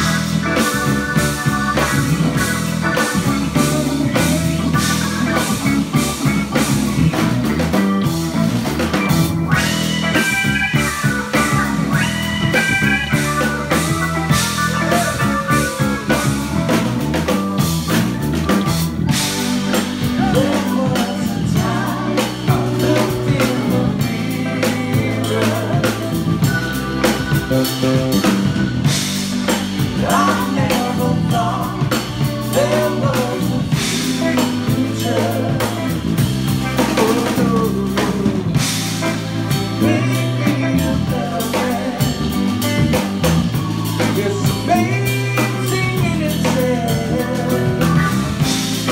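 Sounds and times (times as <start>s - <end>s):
drum kit: 0.0s - 48.9s
electric bass: 0.0s - 48.9s
electric guitar: 0.0s - 48.9s
keyboard: 0.0s - 48.9s
person singing lead vocal: 1.7s - 6.0s, 19.7s - 26.8s, 29.8s - 48.9s.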